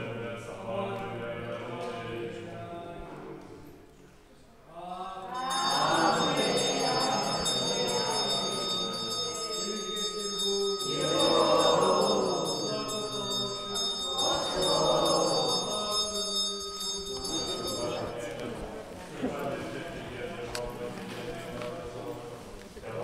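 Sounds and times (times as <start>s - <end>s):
monks chanting: 0.0s - 3.5s, 4.7s - 23.0s
high bell ringing: 5.3s - 18.9s.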